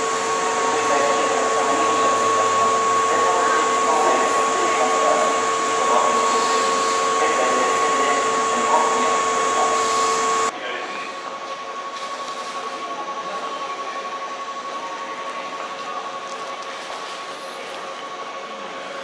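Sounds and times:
electric train equipment humming: 0:00.0 - 0:10.6.

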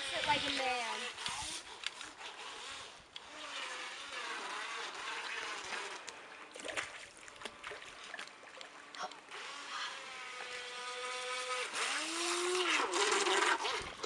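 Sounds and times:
small electric motor: 0:00.0 - 0:06.4, 0:09.3 - 0:14.0.

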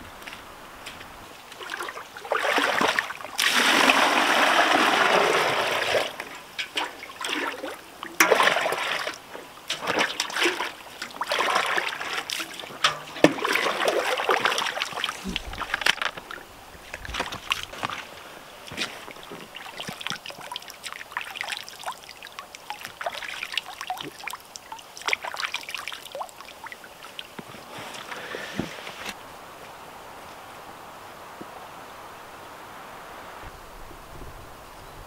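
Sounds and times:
water splashing: 0:00.0 - 0:29.2
water pouring into bucket: 0:01.5 - 0:16.4, 0:18.7 - 0:27.3.

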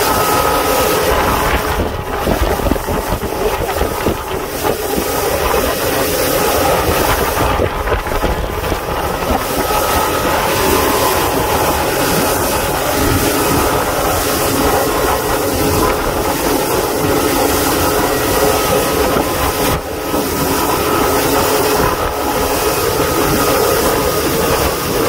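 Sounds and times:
boat engine humming: 0:00.0 - 0:25.0
wind on microphone: 0:00.0 - 0:25.0
hull hissing through water: 0:04.0 - 0:24.0.

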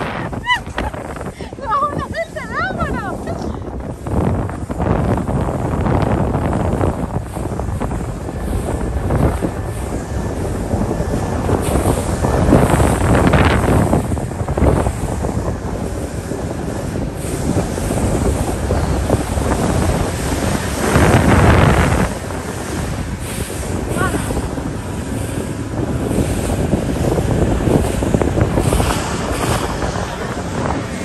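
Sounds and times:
wind buffeting microphone: 0:00.0 - 0:31.0.

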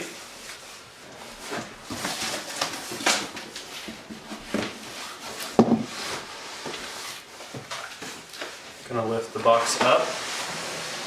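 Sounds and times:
cardboard scraping and rustling: 0:01.3 - 0:07.3.

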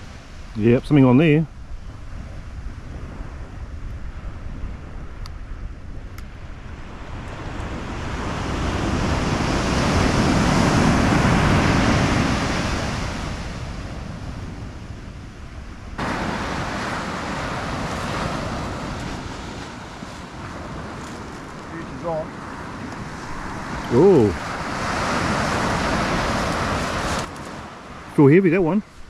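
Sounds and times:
surf breaking on pebble beach: 0:06.8 - 0:14.6, 0:16.0 - 0:28.1.

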